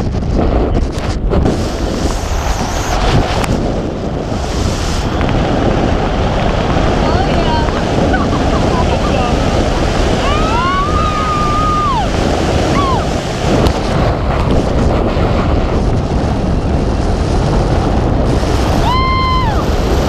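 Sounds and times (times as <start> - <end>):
wind rushing over microphone: 0.0 - 20.0
person screaming excitedly: 10.2 - 12.1.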